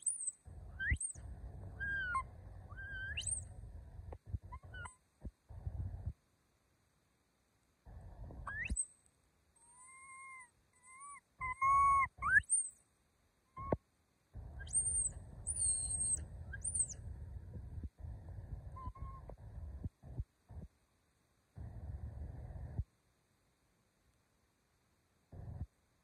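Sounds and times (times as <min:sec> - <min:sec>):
high-pitched whistled animal calls: 0:00.0 - 0:01.2, 0:01.8 - 0:03.5, 0:04.5 - 0:05.0, 0:08.5 - 0:08.9, 0:09.6 - 0:12.8, 0:13.6 - 0:13.8, 0:14.6 - 0:17.0, 0:18.7 - 0:19.3
low noisy rumble: 0:00.4 - 0:09.5, 0:14.1 - 0:26.0.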